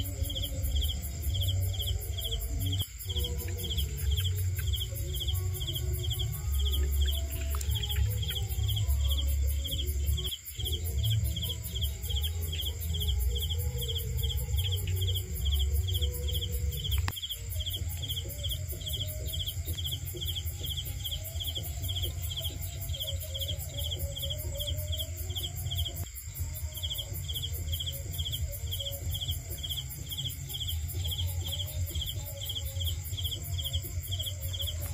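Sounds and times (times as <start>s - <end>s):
crickets chirping: 0.0s - 34.9s
high insect trill: 0.0s - 34.9s.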